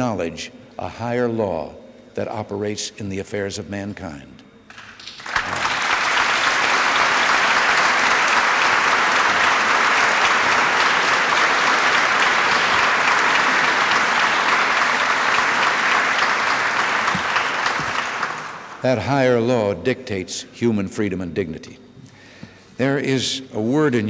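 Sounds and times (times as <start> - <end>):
large audience applauding: 4.7 - 18.9.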